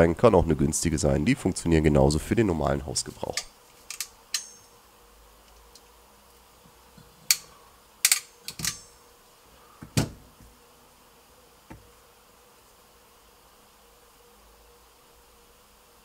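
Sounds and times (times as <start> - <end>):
faint steady hum: 0.0 - 16.0
crimping pliers clicking: 3.3 - 4.6, 7.3 - 8.9
pliers set down knock: 7.3 - 9.0.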